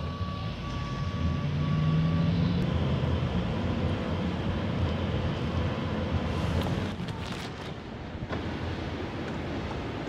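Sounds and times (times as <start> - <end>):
moving car rumble and hiss: 0.0 - 10.0.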